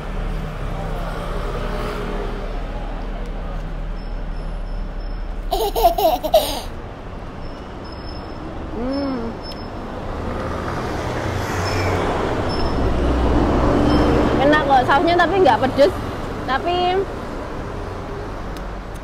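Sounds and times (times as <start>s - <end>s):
street traffic rumbling: 0.0s - 19.0s
person humming mm: 8.7s - 9.4s.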